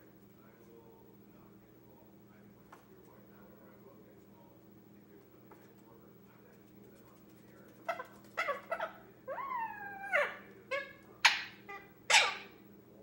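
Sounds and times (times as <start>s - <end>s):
parrot calls and squawks: 7.8s - 12.6s.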